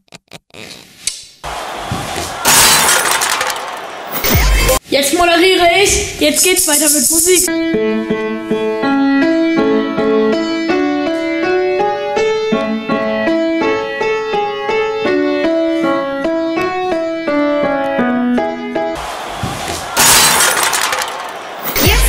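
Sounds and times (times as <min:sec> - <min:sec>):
piano melody: 0:07.5 - 0:19.0.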